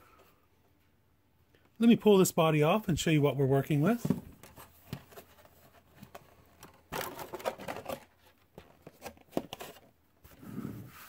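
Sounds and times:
plastic rustling and clicking: 4.0s - 9.9s.

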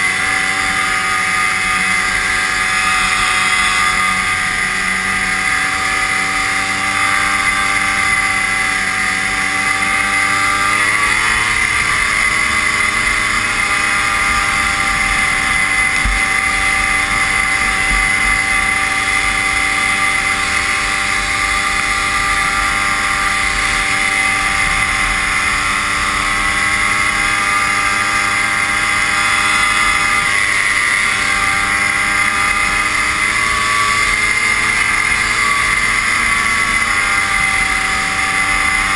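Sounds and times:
rush of wind: 0.0s - 38.9s
snowmobile engine running: 0.0s - 38.9s
track noise: 0.0s - 38.9s.

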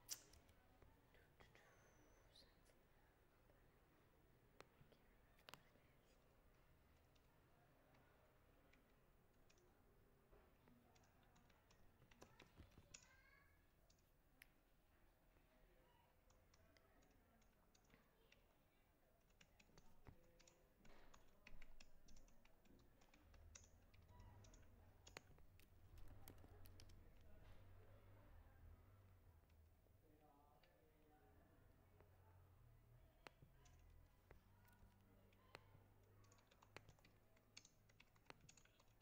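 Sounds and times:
faint low hum: 0.0s - 39.0s
computer keyboard typing: 10.6s - 13.2s, 19.2s - 27.4s, 33.2s - 39.0s.

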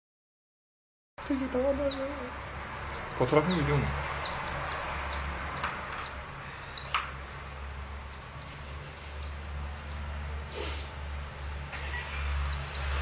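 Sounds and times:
chick peeping: 1.2s - 13.0s.

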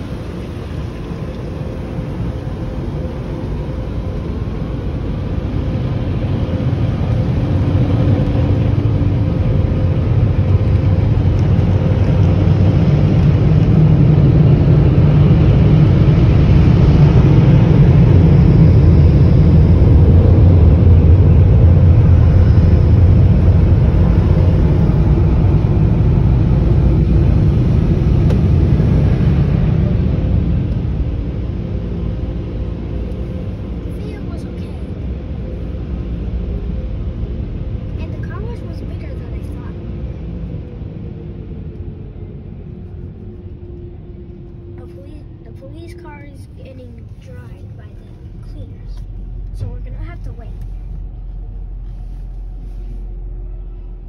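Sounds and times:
car wash air blowers: 0.0s - 34.7s.

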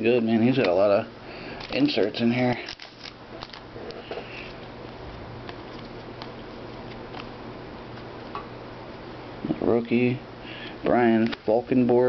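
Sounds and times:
low hum and hiss: 0.0s - 12.0s
trading cards rustling: 1.5s - 4.7s, 5.4s - 8.2s.

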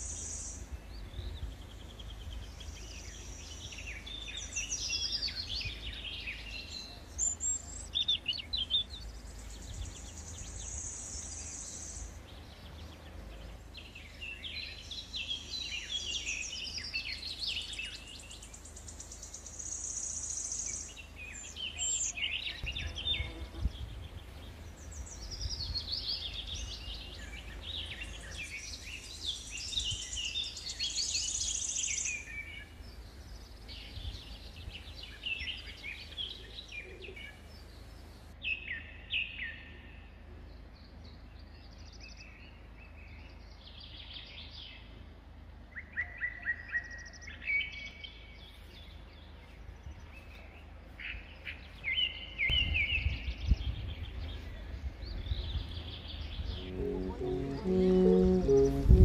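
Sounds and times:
songbirds singing and chirping: 0.0s - 59.0s
high thin fast trill: 56.6s - 59.0s.

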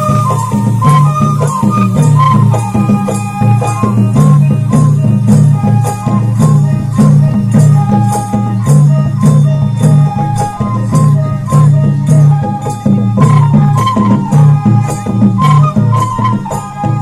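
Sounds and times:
low drum beat: 0.0s - 17.0s
shaken rattle percussion: 0.0s - 17.0s
wind instrument notes: 0.0s - 17.0s.

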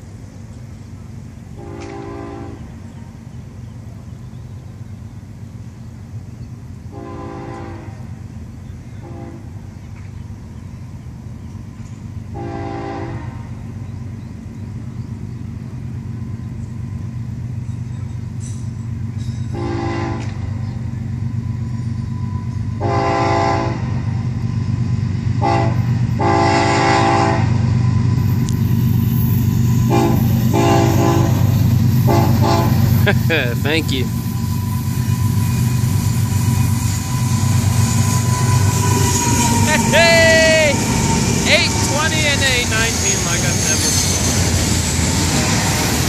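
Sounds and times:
diesel locomotive engine drone: 0.0s - 46.0s
train air horn blasts: 1.6s - 2.7s, 6.9s - 8.1s, 9.0s - 9.6s, 12.3s - 13.6s, 19.5s - 20.4s, 22.8s - 24.0s, 25.4s - 27.6s, 29.8s - 32.9s.

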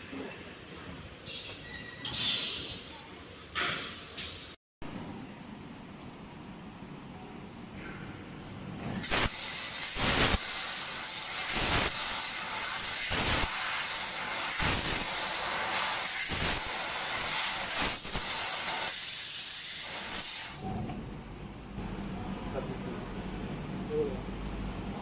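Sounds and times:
laser cutter gas jet hissing: 9.0s - 20.6s.

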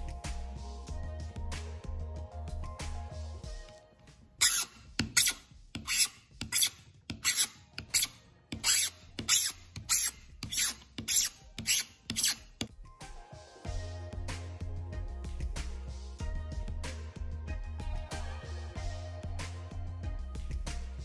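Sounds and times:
metal tool scraping plastic: 4.4s - 12.7s.

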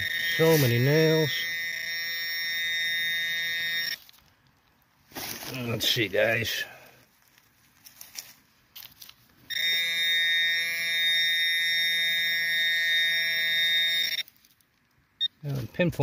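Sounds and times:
electronic alarm tone: 0.0s - 4.0s, 9.5s - 14.3s.

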